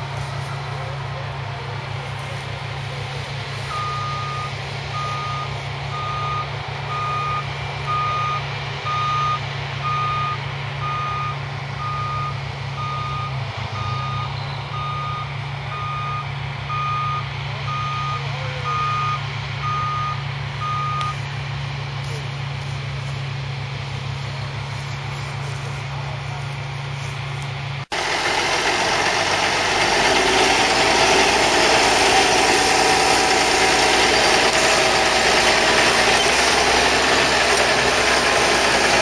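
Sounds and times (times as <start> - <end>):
combine harvester engine running: 0.0 - 39.0
reversing alarm beeping: 3.6 - 21.2.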